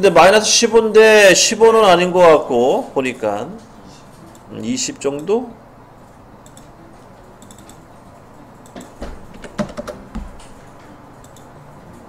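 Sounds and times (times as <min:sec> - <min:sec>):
keyboard typing: 0:06.4 - 0:06.7, 0:07.4 - 0:07.8, 0:08.6 - 0:11.5.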